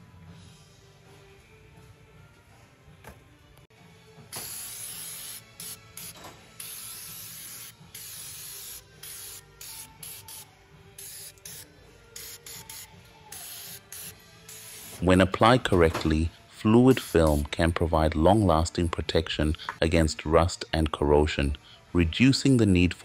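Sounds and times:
aerosol can spraying: 0:04.3 - 0:15.1, 0:16.8 - 0:17.5.

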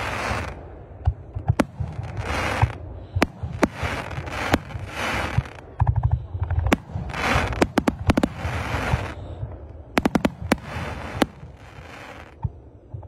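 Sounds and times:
fireworks bangs: 0:00.0 - 0:00.6, 0:01.4 - 0:09.4, 0:10.0 - 0:12.4
fireworks hissing: 0:00.0 - 0:00.6, 0:01.6 - 0:05.7, 0:06.7 - 0:09.3, 0:10.0 - 0:12.4.

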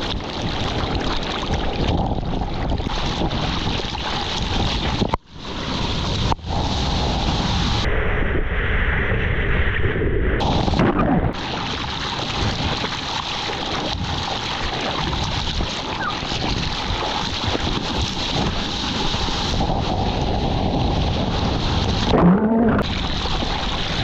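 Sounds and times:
sea water rushing and splashing: 0:00.0 - 0:07.8, 0:10.4 - 0:24.0
wind buffeting microphone: 0:13.7 - 0:24.0.

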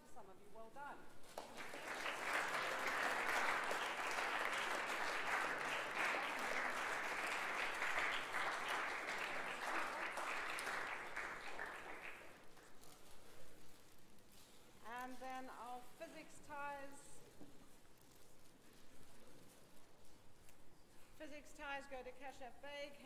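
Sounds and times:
audience applauding: 0:01.3 - 0:12.5.

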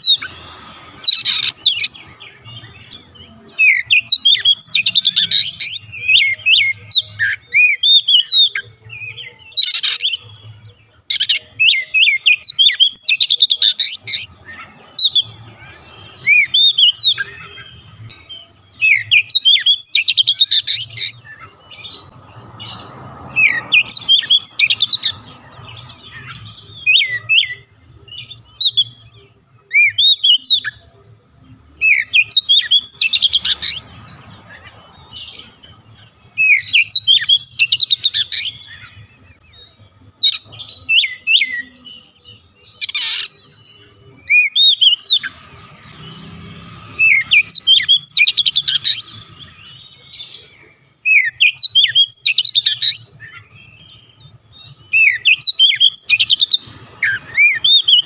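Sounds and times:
bird singing whistles and chatters: 0:01.0 - 0:10.4, 0:11.1 - 0:29.1, 0:29.7 - 0:30.9, 0:31.8 - 0:58.0.

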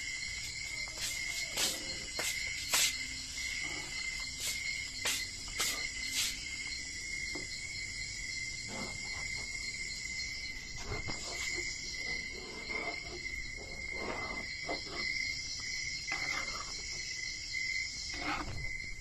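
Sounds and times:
metal spatula scraping a frying pan: 0:16.1 - 0:16.8, 0:18.1 - 0:18.6.

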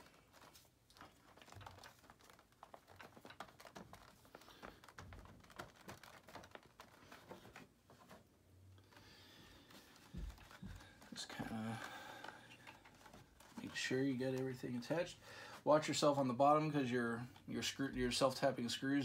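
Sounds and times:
faint clicks and taps: 0:08.9 - 0:14.5.

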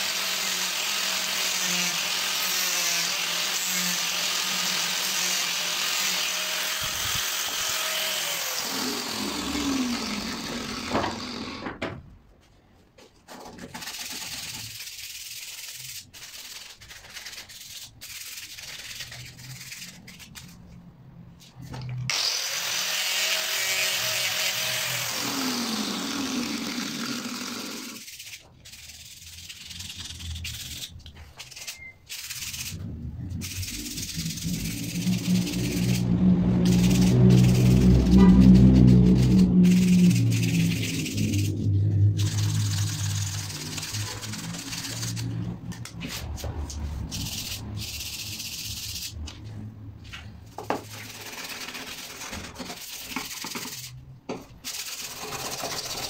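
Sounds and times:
angle grinder sanding wood: 0:00.0 - 0:11.6, 0:22.1 - 0:49.2.

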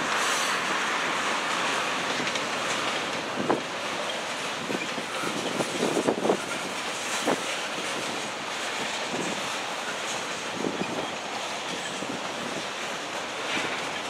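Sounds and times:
freight train rumbling past: 0:00.0 - 0:14.0.

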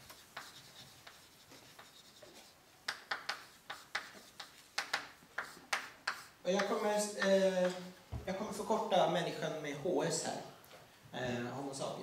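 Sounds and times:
chalk scraping on blackboard: 0:00.0 - 0:07.8
chalk tapping on blackboard: 0:00.0 - 0:07.8.

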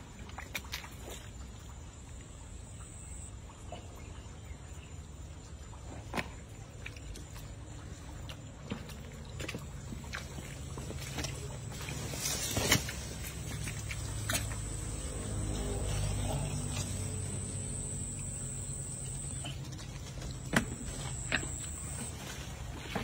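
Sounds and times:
splashes in shallow water: 0:00.0 - 0:23.0
steady low hum: 0:02.0 - 0:03.6, 0:10.0 - 0:23.0
thin high whine: 0:02.6 - 0:03.3, 0:11.6 - 0:23.0.

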